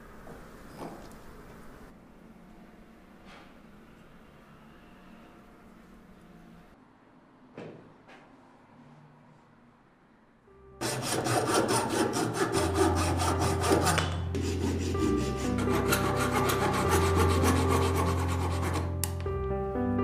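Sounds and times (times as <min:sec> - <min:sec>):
hand saw cutting wood: 0:10.8 - 0:19.0.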